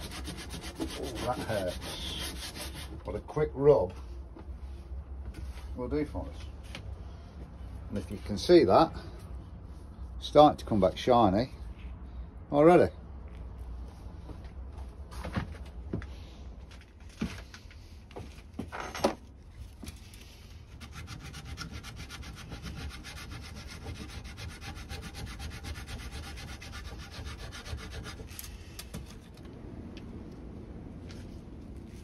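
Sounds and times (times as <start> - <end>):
foil scrubbing on metal rim: 0.0 - 2.9, 20.8 - 28.4.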